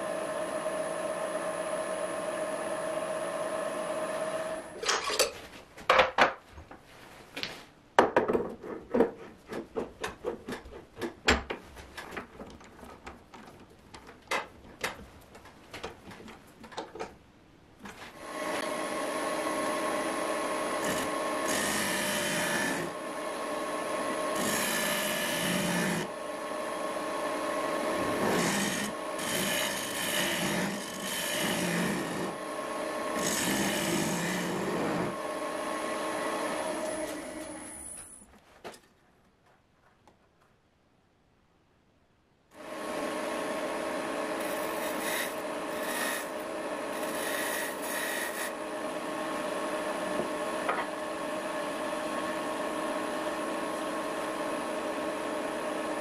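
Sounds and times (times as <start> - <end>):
lathe motor humming: 18.2 - 38.0, 42.6 - 56.0
gouge scraping spinning wood: 19.4 - 23.0, 24.0 - 26.1, 27.6 - 37.7, 44.4 - 48.6.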